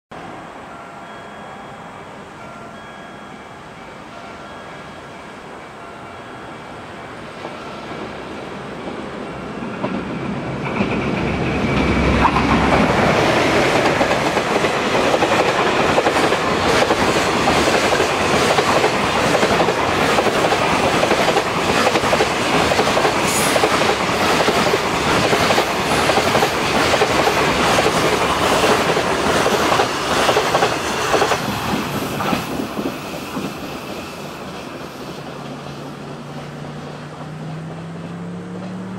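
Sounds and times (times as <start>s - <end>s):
freight train passing: 0.1s - 38.9s
wheels clacking over rail joints: 9.7s - 38.9s.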